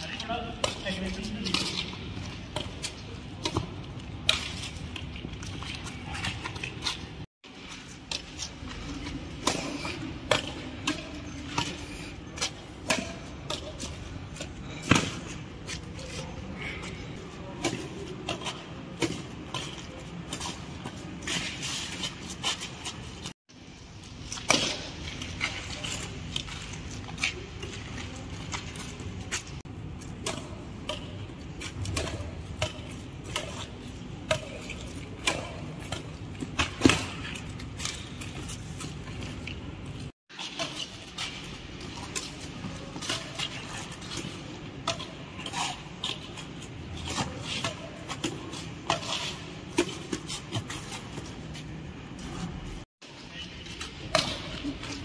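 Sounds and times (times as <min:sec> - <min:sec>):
rackets hitting shuttlecock: 0:08.1 - 0:11.8, 0:12.4 - 0:16.3, 0:24.4 - 0:26.2, 0:30.0 - 0:38.3, 0:53.9 - 0:55.0.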